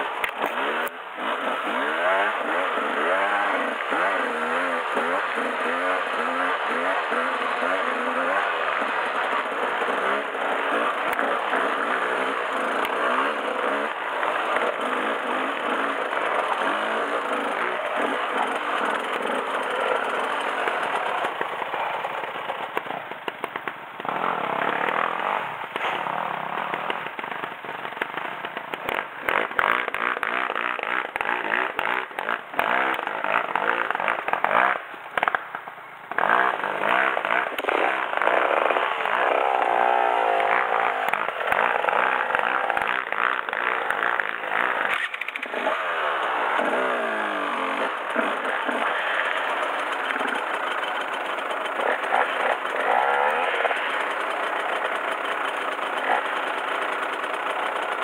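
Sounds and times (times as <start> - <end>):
motorcycle engine revving: 0.0 - 58.0
sharp knocks and rattles: 47.9 - 58.0.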